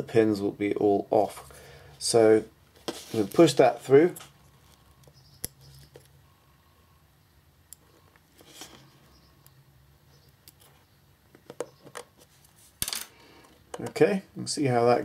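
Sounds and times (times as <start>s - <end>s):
soft rustle: 2.0s - 5.0s, 12.1s - 12.8s.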